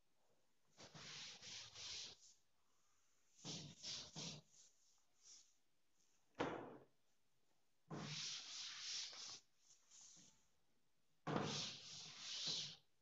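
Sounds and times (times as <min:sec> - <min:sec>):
cloth wiping chalkboard: 0:00.7 - 0:06.3, 0:07.9 - 0:10.6, 0:11.2 - 0:12.9.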